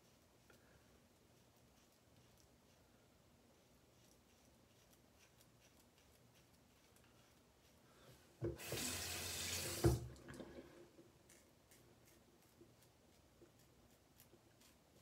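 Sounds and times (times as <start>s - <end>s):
tap water running: 8.4s - 10.8s.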